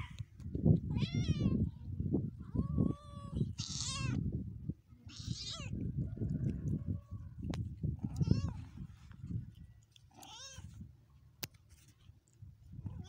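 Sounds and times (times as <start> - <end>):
cats meowing: 0.9 - 1.7, 2.5 - 4.2, 5.0 - 5.8, 8.0 - 8.7, 10.1 - 10.7.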